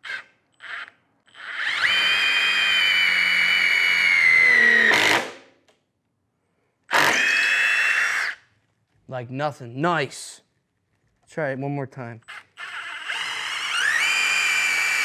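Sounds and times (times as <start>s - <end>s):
impact driver motor whine: 0.0s - 5.3s, 6.9s - 8.4s, 12.3s - 15.0s.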